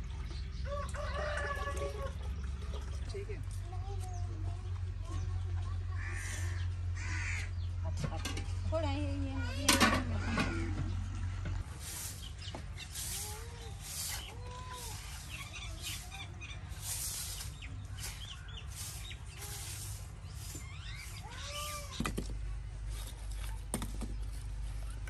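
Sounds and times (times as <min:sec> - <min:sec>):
farmyard animals calling: 0:05.8 - 0:07.8
small bird chirps: 0:12.0 - 0:21.9.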